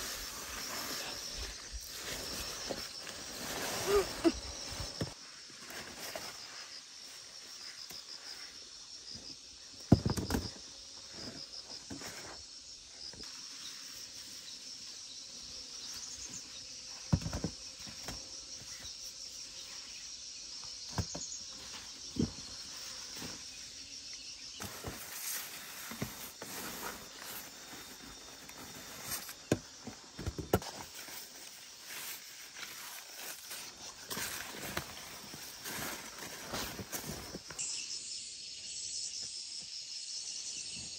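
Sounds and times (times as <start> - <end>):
leaves rustling: 0.0 - 8.5, 24.6 - 29.6, 30.6 - 37.5
insects chirping: 0.0 - 40.9.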